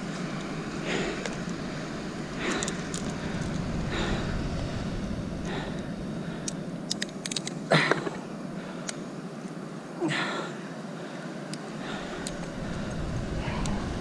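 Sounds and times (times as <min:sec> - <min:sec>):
wind: 0:00.0 - 0:14.0
heavy breaths: 0:00.7 - 0:01.6, 0:02.3 - 0:07.0, 0:07.7 - 0:14.0
pliers metallic clicks: 0:06.4 - 0:07.6.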